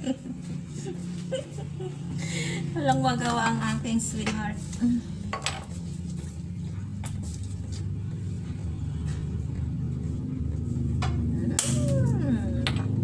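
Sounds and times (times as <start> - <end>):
low rumble: 3.8 - 13.0.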